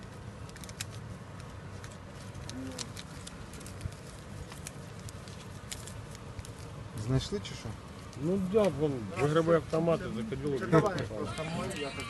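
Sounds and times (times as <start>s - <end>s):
packet clicking and crinkling: 0.0s - 8.8s.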